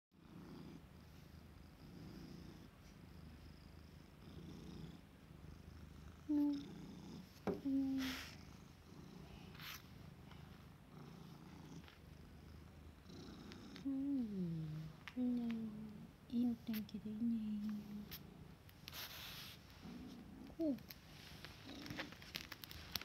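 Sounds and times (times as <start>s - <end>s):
cat purring: 0.2s - 23.0s.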